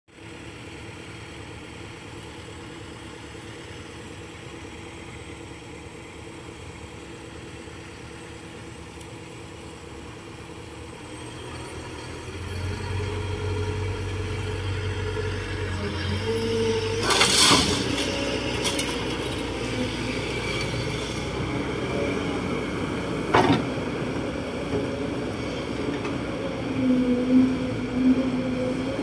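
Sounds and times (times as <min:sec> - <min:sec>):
excavator diesel engine running: 0:00.1 - 0:29.0
dump truck engine reversing: 0:09.4 - 0:29.0.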